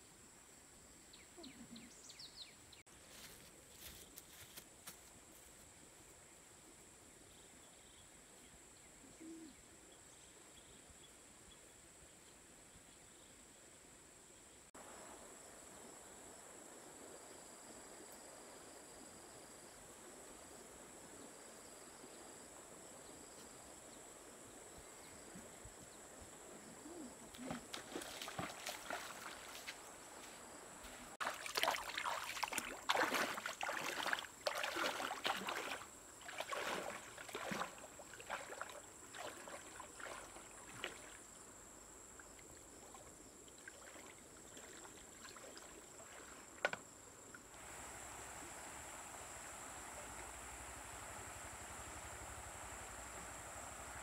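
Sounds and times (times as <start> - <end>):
flowing river water: 27.2 - 54.0
feet splashing through a stream: 27.3 - 41.4, 42.8 - 46.6.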